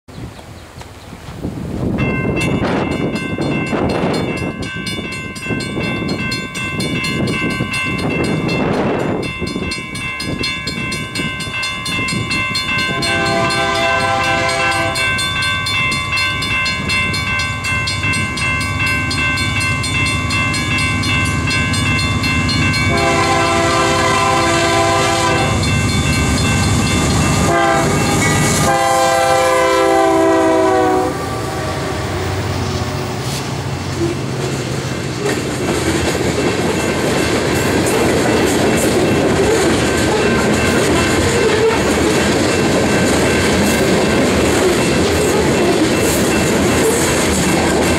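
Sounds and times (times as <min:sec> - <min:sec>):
wind buffeting microphone: 0:00.1 - 0:19.0
train engines and wheels rumbling: 0:00.1 - 0:47.9
locomotive air horn blasts: 0:12.9 - 0:15.1, 0:22.9 - 0:25.7, 0:27.3 - 0:32.4.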